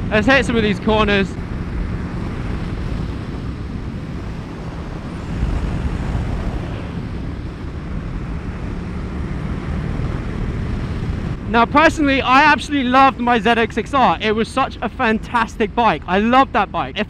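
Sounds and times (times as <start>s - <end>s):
wind rushing over microphone: 0.0s - 12.9s
motorcycle engine running: 0.8s - 11.5s.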